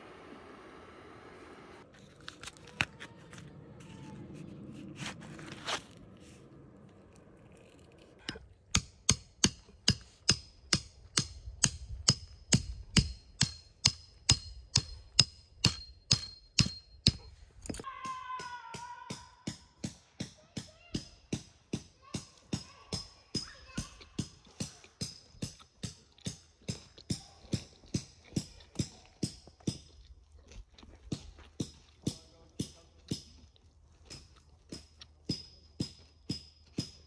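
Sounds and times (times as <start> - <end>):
scrape: 3.3 - 6.6
metal tent peg being hammered: 8.2 - 20.0.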